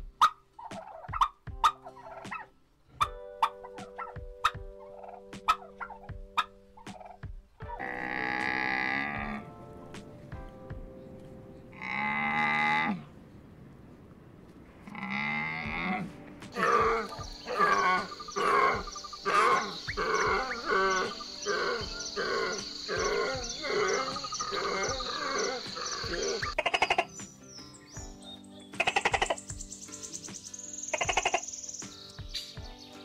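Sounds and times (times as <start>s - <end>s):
repeated animal calls: 0.2s - 9.5s, 11.7s - 13.1s, 14.8s - 27.3s, 28.7s - 29.7s, 30.9s - 31.6s
camel calling: 7.7s - 9.6s, 11.7s - 13.2s, 14.8s - 27.1s.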